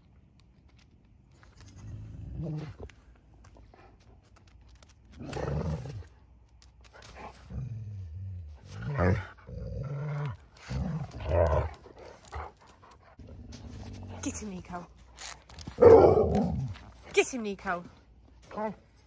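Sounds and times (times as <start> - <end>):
dogs growling and grumbling: 1.8 - 4.0, 5.0 - 6.3, 6.9 - 17.1.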